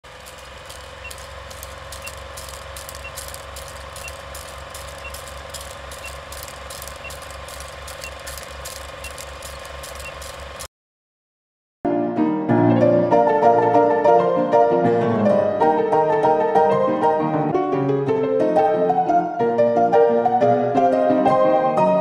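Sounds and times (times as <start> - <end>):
mechanical rattle and hum: 0.0 - 10.7.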